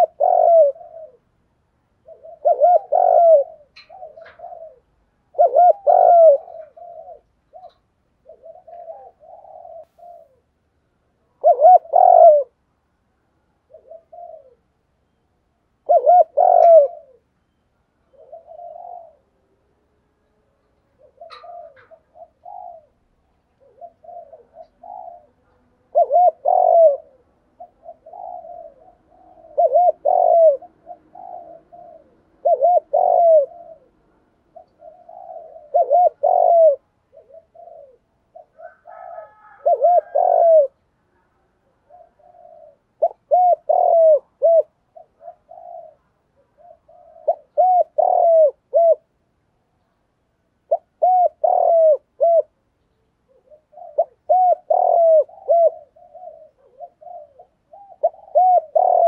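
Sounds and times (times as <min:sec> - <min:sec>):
dove cooing: 0:00.0 - 0:12.6, 0:13.6 - 0:14.8, 0:15.7 - 0:17.4, 0:18.0 - 0:49.2, 0:50.6 - 0:59.0
faint higher bird call: 0:02.0 - 0:10.6, 0:13.6 - 0:49.0.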